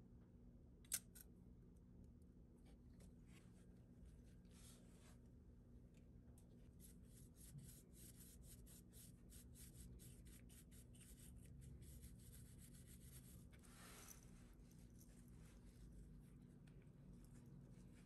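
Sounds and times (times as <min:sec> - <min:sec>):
paintbrush strokes: 0:06.6 - 0:18.0.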